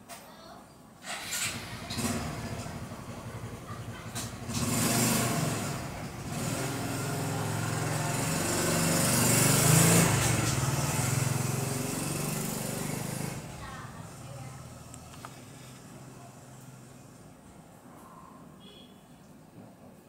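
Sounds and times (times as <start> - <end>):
vehicle engine passing by: 1.0 - 17.3.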